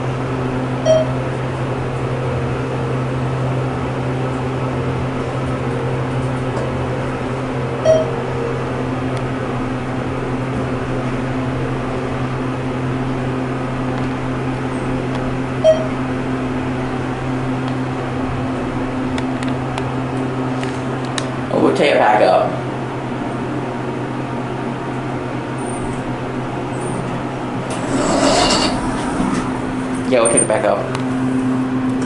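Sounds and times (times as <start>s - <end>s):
elevator hum: 0.0s - 32.0s
short electronic beeps: 0.8s - 1.2s, 7.8s - 8.2s, 15.6s - 16.0s.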